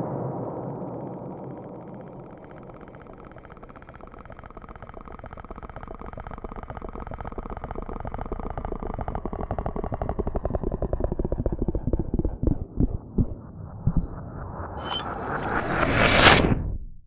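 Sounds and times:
faint high whine: 0.0s - 11.7s, 14.7s - 16.4s
low buzzy pulses: 0.0s - 17.0s.

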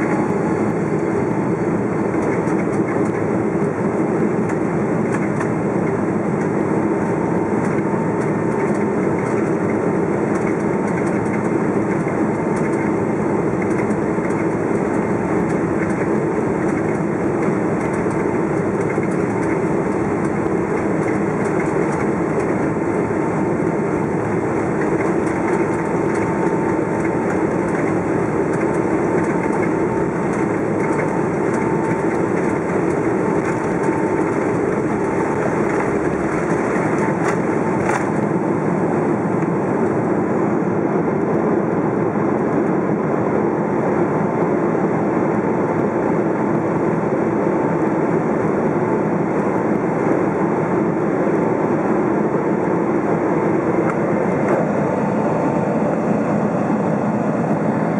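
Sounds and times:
runway roll rumble: 0.0s - 40.2s
faint steady whine: 0.0s - 57.9s
jet engines at takeoff thrust: 0.0s - 57.9s.

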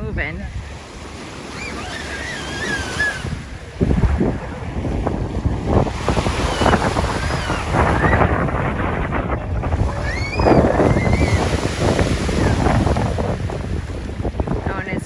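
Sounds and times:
small waves washing: 0.0s - 15.0s
wind buffeting microphone: 0.0s - 15.0s
high wavering bird calls: 1.5s - 3.3s.

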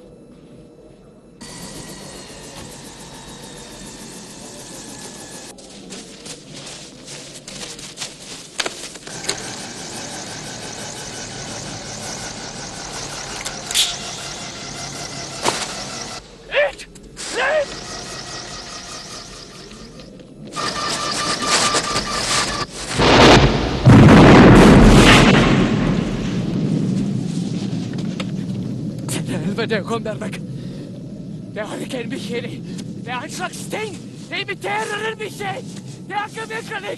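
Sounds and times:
helicopter engine and rotor: 1.4s - 5.7s, 8.9s - 16.4s, 17.2s - 22.7s
sharp cracks: 8.5s - 28.4s
explosion blasts: 22.8s - 29.6s.

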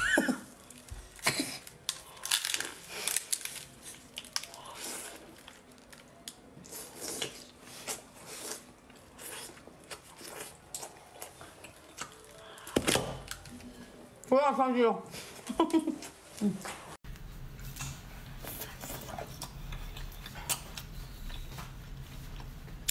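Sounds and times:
crunching and tearing food: 0.5s - 13.5s
person biting and chewing food: 0.6s - 13.5s.

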